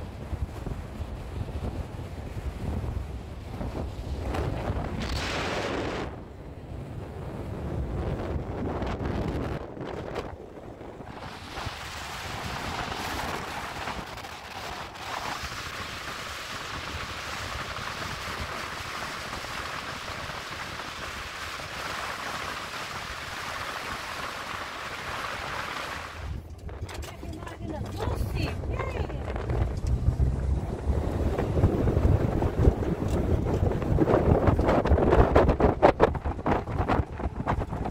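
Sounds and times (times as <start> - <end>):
vehicle wind and road noise: 0.0 - 37.9
low vehicle rumble: 23.3 - 37.9.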